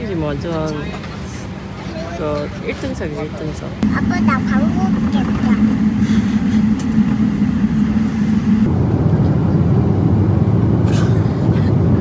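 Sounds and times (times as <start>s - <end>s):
airliner cabin rumble: 3.8s - 12.0s.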